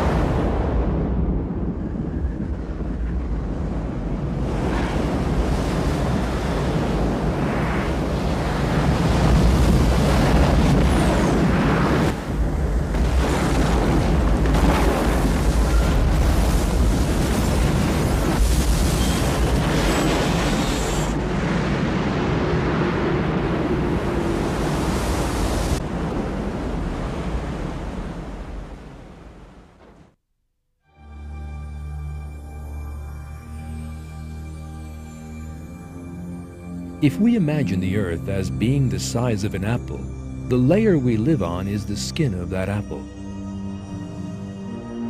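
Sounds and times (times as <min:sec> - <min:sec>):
rush of water and wind: 0:00.0 - 0:29.8.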